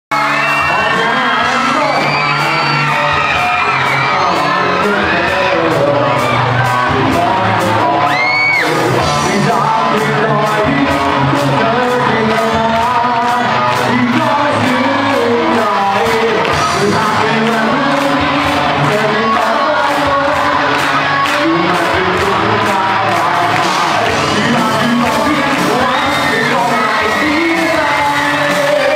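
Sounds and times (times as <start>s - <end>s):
cymbals keeping a beat: 0.1s - 28.9s
live rock band playing: 0.1s - 28.9s
male singer: 0.2s - 28.9s
high rising whoop: 8.0s - 8.7s.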